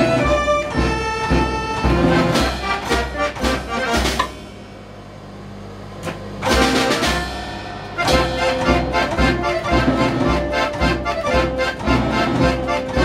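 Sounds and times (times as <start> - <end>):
accordion dance tune: 0.0 - 4.4, 6.4 - 13.0
bass drum beat: 0.0 - 5.1, 6.4 - 13.0
cymbal crashes: 2.4 - 5.8, 6.4 - 9.8.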